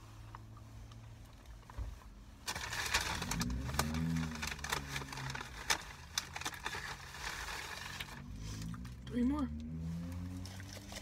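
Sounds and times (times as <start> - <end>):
paper packaging rustling: 2.4 - 8.4.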